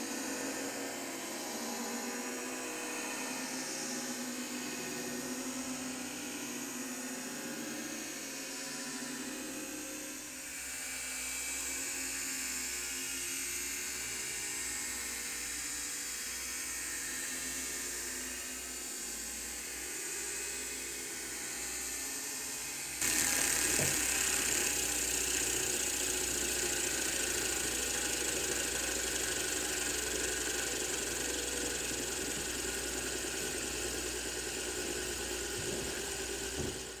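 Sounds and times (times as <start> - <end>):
fidget spinner whirring: 22.5 - 37.0.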